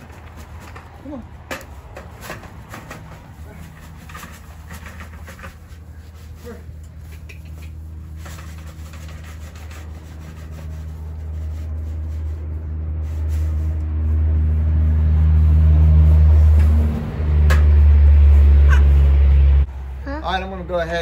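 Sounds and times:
steady low rumble: 9.5s - 21.0s.

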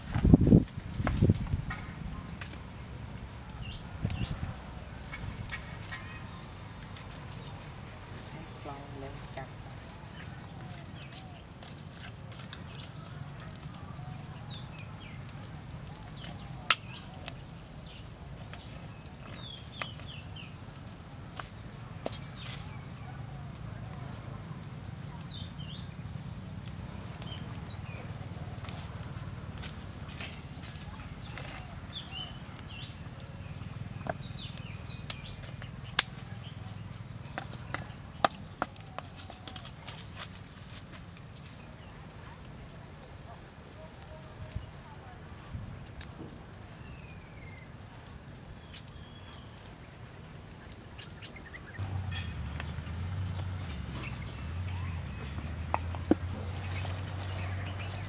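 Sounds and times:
wood fire crackling and popping: 0.0s - 58.0s
birds chirping: 2.8s - 40.8s, 41.5s - 58.0s
sharp snaps: 34.0s - 36.2s
bird chirping: 44.6s - 49.9s.

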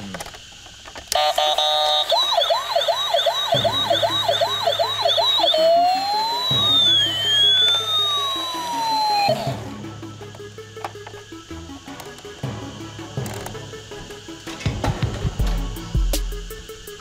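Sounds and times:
toy electronic siren: 1.1s - 11.2s.

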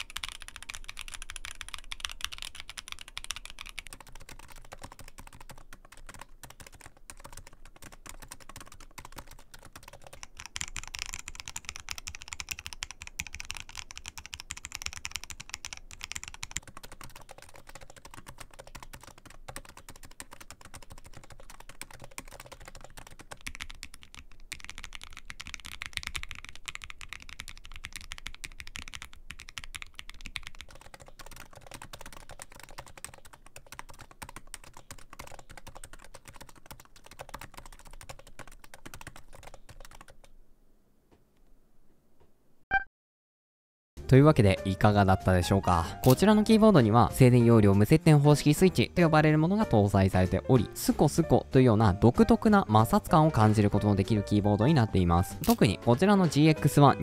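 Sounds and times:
typing on mechanical keyboard: 0.0s - 40.4s.

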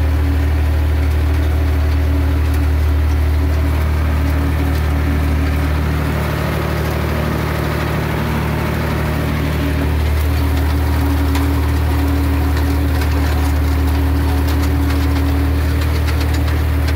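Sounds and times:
tractor engine running: 0.0s - 16.9s.

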